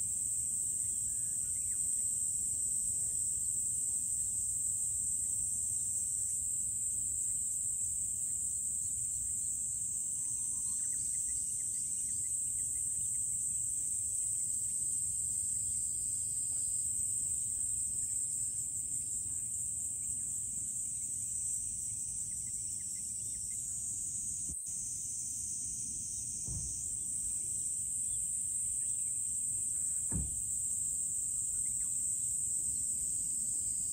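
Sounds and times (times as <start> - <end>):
insects droning in trees: 0.0 - 33.9
faint bird chirps: 0.7 - 2.3, 9.0 - 24.0, 31.2 - 32.2.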